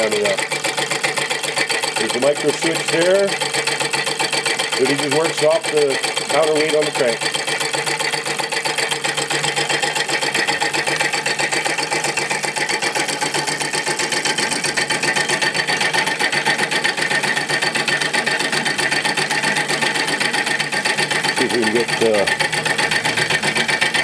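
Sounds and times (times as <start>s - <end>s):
solenoid engine clattering: 0.0s - 24.0s.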